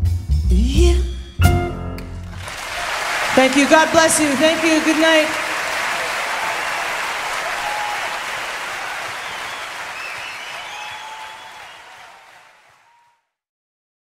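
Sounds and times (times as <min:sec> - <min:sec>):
audience applause: 0:02.2 - 0:13.2
whistles from audience: 0:08.8 - 0:13.2.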